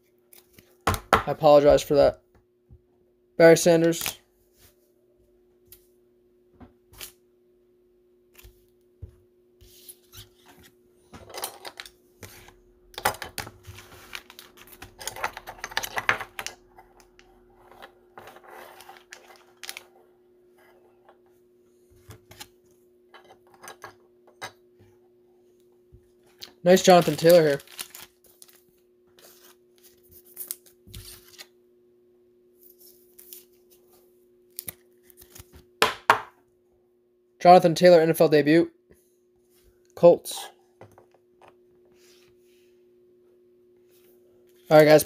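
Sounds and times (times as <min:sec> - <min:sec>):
faint steady hum: 0:00.0 - 0:45.0
plastic wrapper rustling: 0:13.7 - 0:16.6, 0:18.7 - 0:20.0, 0:26.4 - 0:31.5.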